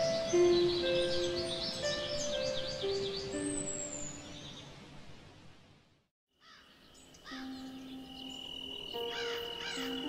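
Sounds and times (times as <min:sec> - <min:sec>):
background music: 0:00.0 - 0:04.4, 0:07.2 - 0:10.0
bird calls: 0:06.4 - 0:10.0.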